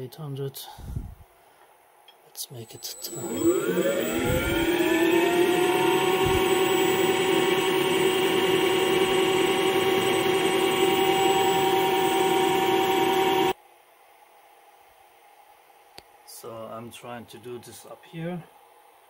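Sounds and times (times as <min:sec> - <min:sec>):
lathe spindle whining: 0:02.6 - 0:13.6.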